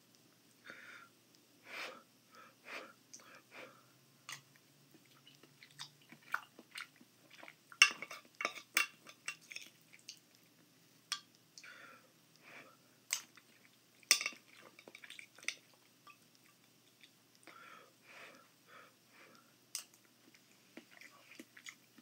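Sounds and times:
soft chewing: 3.1 - 17.6, 19.2 - 22.0.

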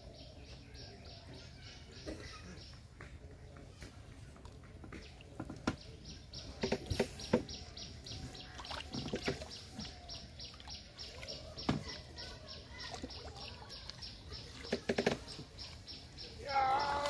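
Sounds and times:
water splashing and dripping: 3.9 - 17.0.

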